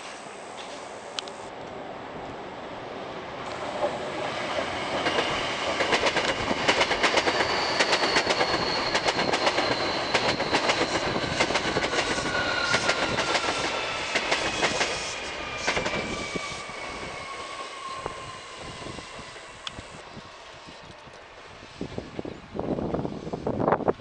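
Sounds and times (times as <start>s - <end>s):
train wheels clacking over rail joints: 4.9s - 16.0s.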